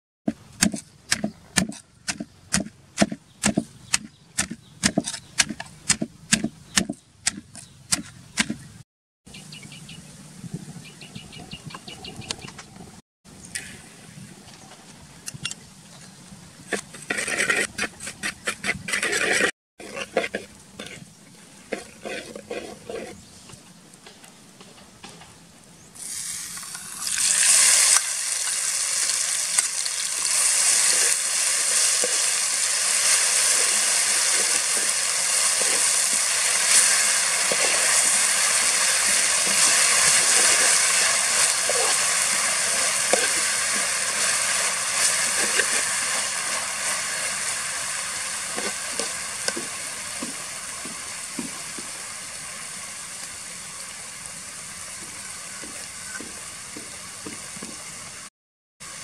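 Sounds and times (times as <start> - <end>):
chillies sizzling in hot oil: 26.0 - 59.0.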